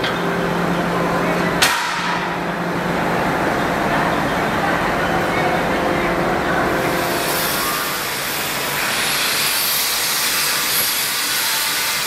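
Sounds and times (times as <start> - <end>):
angle grinder grinding steel: 6.8 - 12.0.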